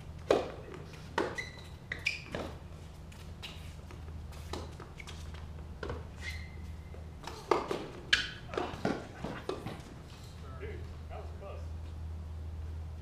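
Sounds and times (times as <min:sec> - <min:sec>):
steady low hum: 0:00.0 - 0:13.0
tennis balls struck by rackets: 0:00.2 - 0:02.7, 0:07.0 - 0:10.1.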